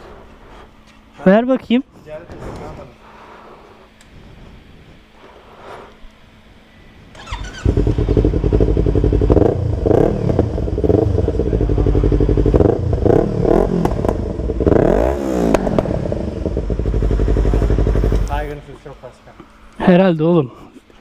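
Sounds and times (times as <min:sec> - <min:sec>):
electric starter whir: 0:07.1 - 0:18.6
motorcycle engine revving: 0:07.1 - 0:18.7.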